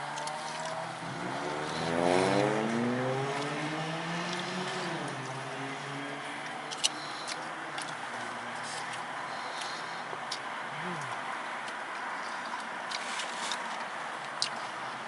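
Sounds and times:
car engine accelerating: 0.0 - 9.8.

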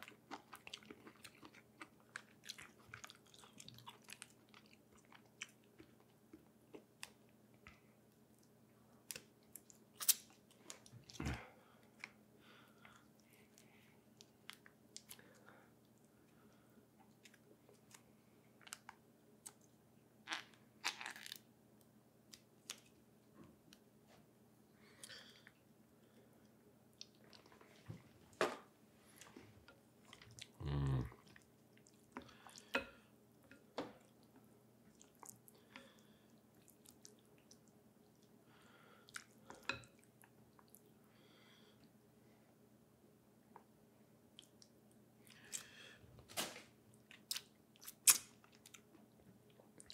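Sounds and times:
person chewing food: 0.0 - 21.5, 24.9 - 27.6, 29.0 - 38.4, 39.0 - 40.9, 46.9 - 49.9.

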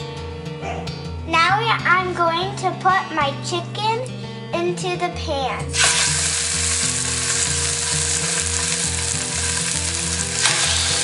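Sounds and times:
chicken sizzling in oil: 5.7 - 11.0.

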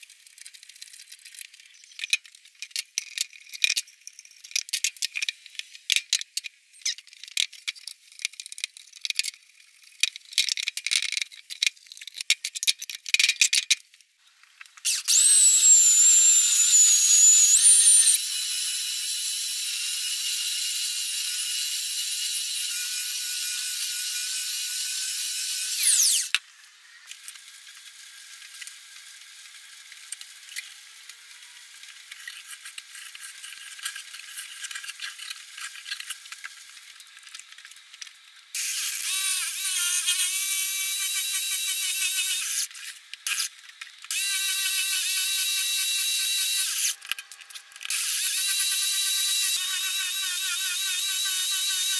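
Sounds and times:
electric hand planer whining: 15.1 - 26.3.

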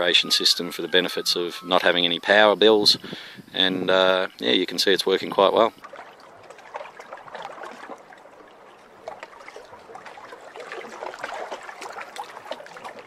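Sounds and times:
water bubbling and trickling: 4.8 - 13.0.

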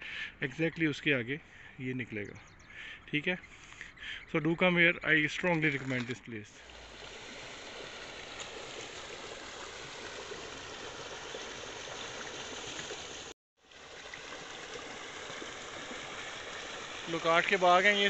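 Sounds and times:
water rushing down channel: 5.6 - 18.0.

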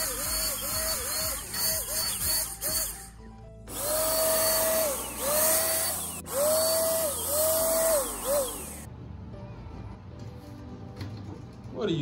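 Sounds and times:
paint sprayer motor whining: 0.0 - 8.9.

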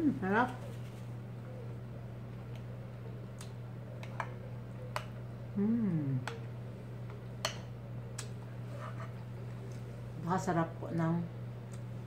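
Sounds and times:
person humming: 0.0 - 0.2, 5.5 - 6.4
steady low hum: 0.0 - 12.0.

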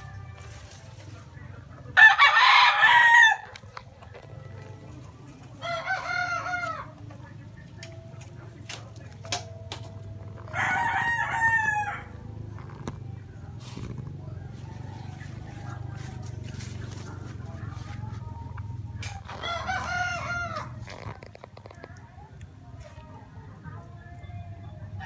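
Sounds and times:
roosters crowing: 1.9 - 7.3, 10.2 - 12.8, 14.0 - 18.1, 18.8 - 21.4.

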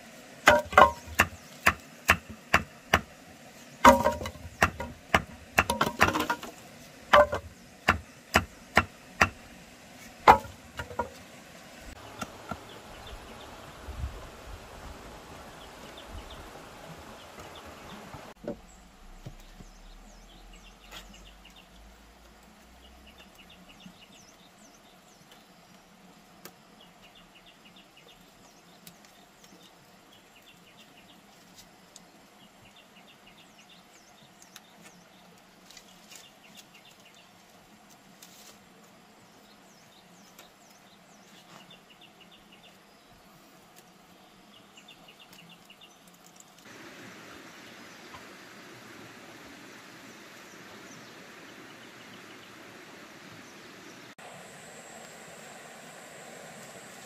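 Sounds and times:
chopping wooden poles: 0.4 - 3.1, 3.8 - 9.5, 10.1 - 11.2
rustling: 34.7 - 39.0.

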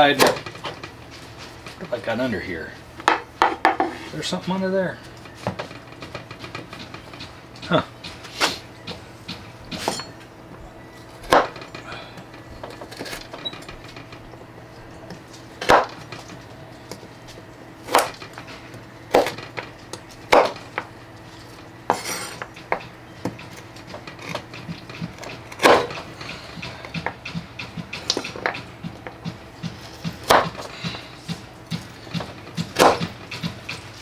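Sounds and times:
cleaver chopping on wooden board: 11.3 - 11.6, 15.6 - 16.1, 17.8 - 18.3, 19.1 - 19.4, 20.3 - 20.9, 21.9 - 33.8.

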